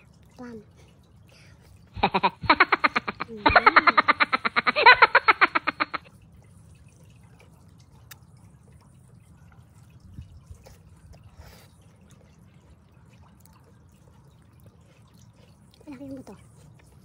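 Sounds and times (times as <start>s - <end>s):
person chewing juicy fruit: 6.1s - 17.0s.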